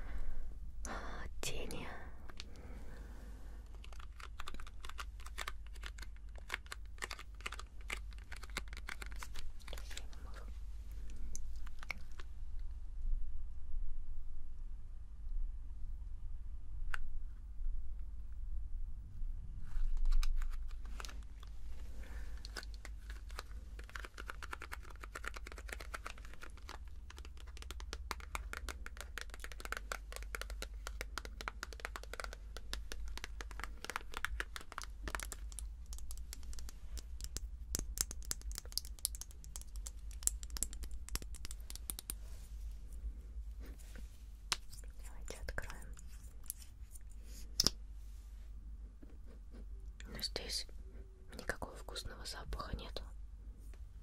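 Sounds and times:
packaging crinkling: 3.7 - 10.3, 20.0 - 42.1.

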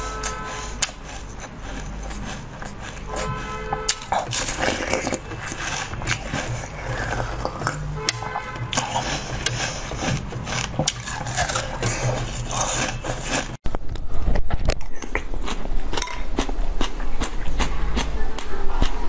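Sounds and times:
chewing jelly beads: 0.0 - 13.6, 14.9 - 19.0.

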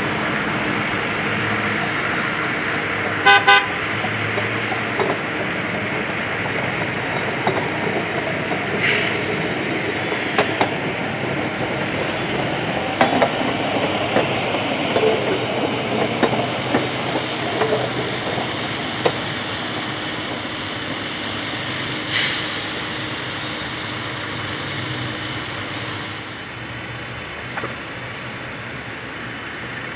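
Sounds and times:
truck rolling on rails: 0.0 - 21.0
clicks and clacks over track: 4.0 - 8.8, 9.8 - 19.3
short hisses: 8.8 - 9.4, 22.1 - 22.9.

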